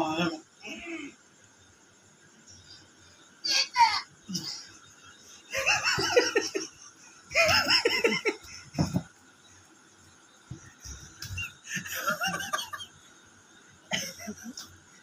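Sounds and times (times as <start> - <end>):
person laughing: 11.2 - 12.8, 13.9 - 14.6.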